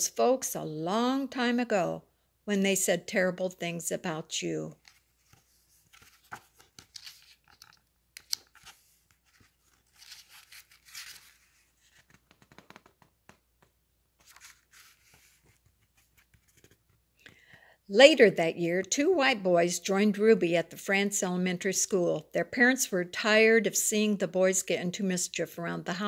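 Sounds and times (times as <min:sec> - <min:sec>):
page turning swish: 0:04.8 - 0:13.1, 0:14.2 - 0:16.9
book pages rustling: 0:04.8 - 0:17.1.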